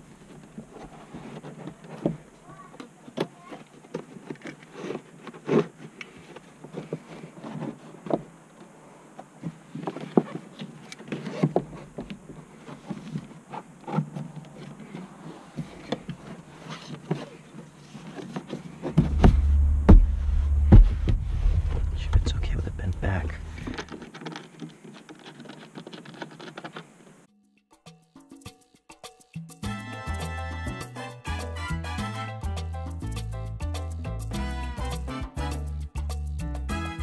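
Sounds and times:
hands and tool working on car trim: 0.5s - 27.2s
low rumble: 19.0s - 23.9s.

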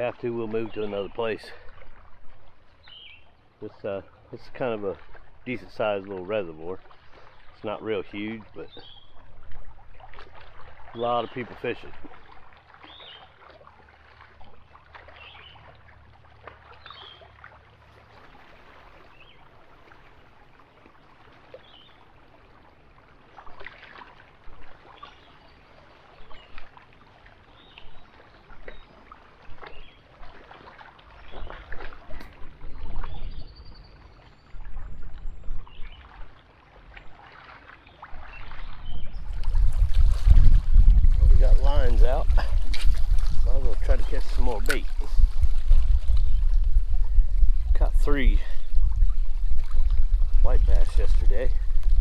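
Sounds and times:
wind buffeting microphone: 34.5s - 36.0s, 38.3s - 52.0s
waves splashing against rocks: 39.3s - 52.0s.

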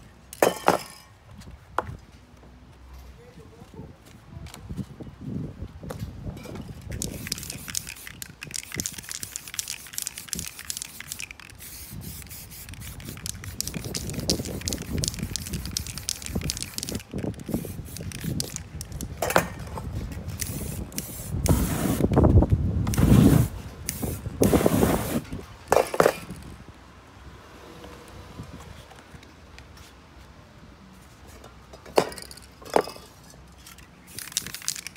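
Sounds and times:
spray paint can hissing: 6.8s - 22.2s, 22.9s - 25.2s, 34.0s - 34.9s.

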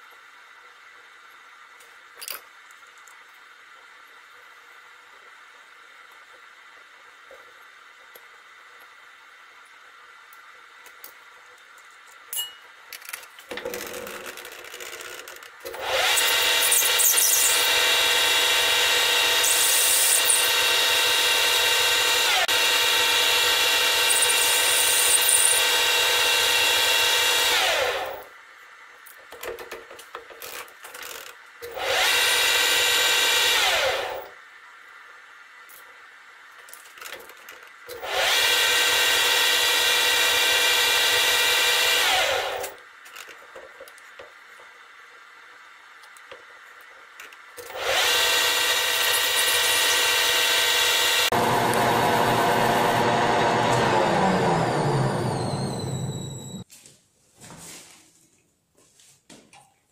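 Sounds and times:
metal lathe whining: 15.8s - 28.2s, 47.7s - 56.6s.

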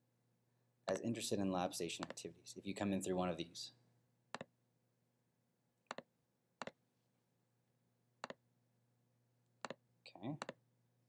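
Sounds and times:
computer mouse clicking: 4.3s - 4.5s, 5.8s - 6.8s, 8.2s - 8.4s, 9.6s - 9.8s.

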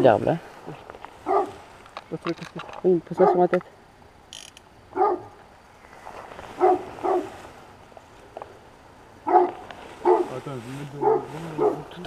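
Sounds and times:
dog barking: 1.2s - 1.6s, 4.9s - 5.4s, 6.6s - 7.4s, 9.2s - 10.4s, 11.0s - 11.9s.

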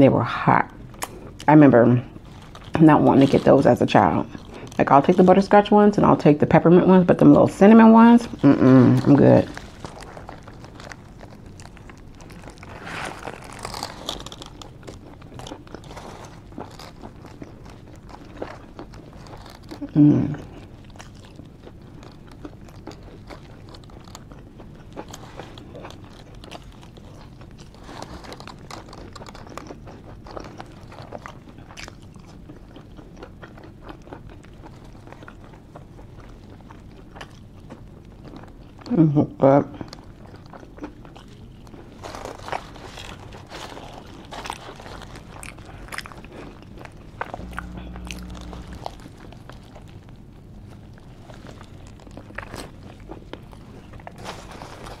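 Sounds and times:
person chewing fries: 0.7s - 39.0s, 39.6s - 55.0s
aluminium foil crinkling: 2.0s - 33.2s, 39.8s - 55.0s
small crackly clicks: 20.5s - 33.6s
low hum: 47.2s - 49.6s.

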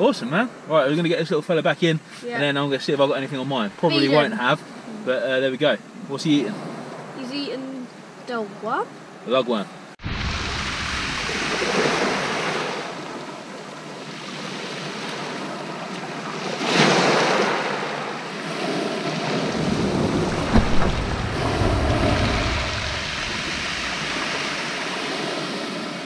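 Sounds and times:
wind buffeting microphone: 16.8s - 26.0s
waves breaking on shingle: 19.2s - 25.1s.

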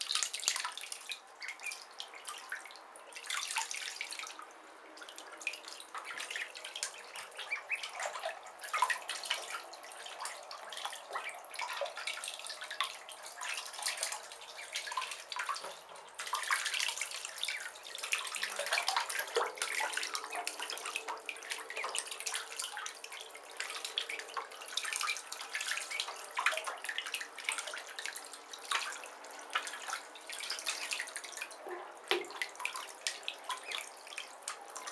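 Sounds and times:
ducklings splashing in bathwater: 0.0s - 34.9s.

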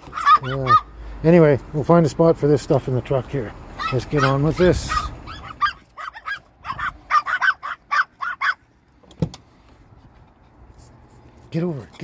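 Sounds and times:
small dogs yapping: 0.0s - 1.0s, 3.7s - 8.7s.

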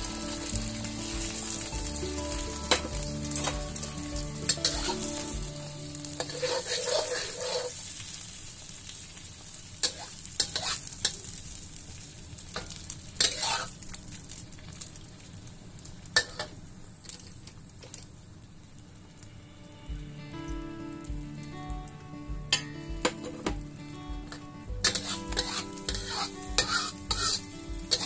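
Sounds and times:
eggs sizzling in hot oil: 0.0s - 21.6s, 22.5s - 28.0s
metal spatula scraping wok: 2.5s - 5.3s, 6.0s - 7.9s, 9.8s - 10.9s, 13.2s - 13.8s, 24.8s - 28.0s.

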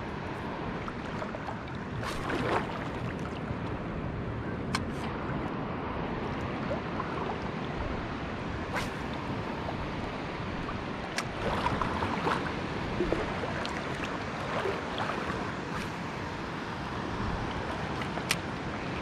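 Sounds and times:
sea water lapping: 0.0s - 3.6s, 4.8s - 19.0s
wind on microphone: 0.0s - 19.0s.

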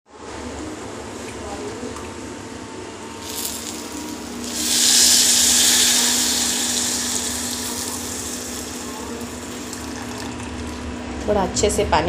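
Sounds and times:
hot water pouring into a bowl: 3.2s - 11.0s.

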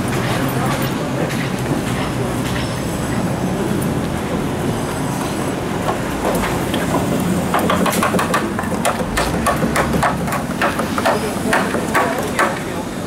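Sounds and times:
low hum of street traffic: 0.0s - 13.0s
hammer knocking on wood: 7.5s - 12.6s.

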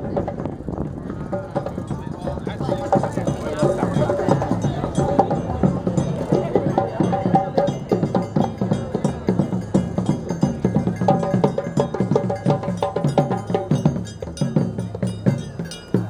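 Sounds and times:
rhythmic percussion music: 0.0s - 16.0s.

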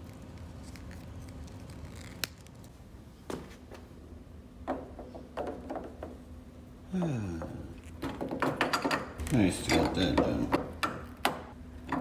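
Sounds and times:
plumber's tape being wrapped: 0.0s - 2.8s
steady low hum: 0.0s - 12.0s.

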